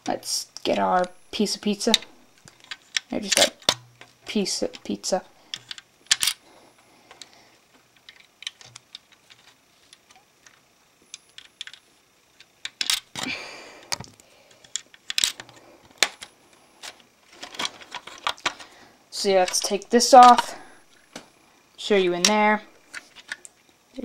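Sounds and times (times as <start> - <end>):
plastic bricks clicking and clattering: 4.7 - 6.4, 11.3 - 11.8, 12.4 - 13.3, 13.9 - 18.7.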